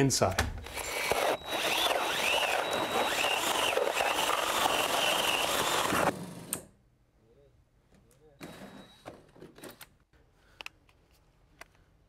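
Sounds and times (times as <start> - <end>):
drill hole saw cutting wood: 0.6 - 6.2.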